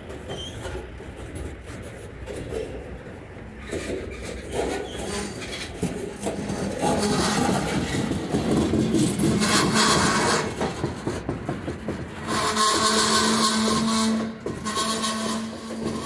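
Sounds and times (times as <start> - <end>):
train cars clanking: 0.0 - 16.0
train wheels on rails: 0.0 - 16.0.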